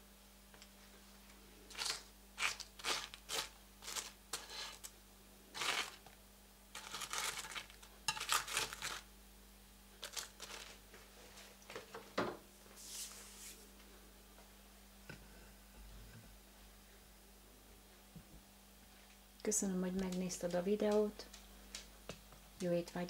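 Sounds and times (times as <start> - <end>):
tongs crunching fried slices: 1.7 - 4.9, 5.6 - 6.1, 6.8 - 9.1.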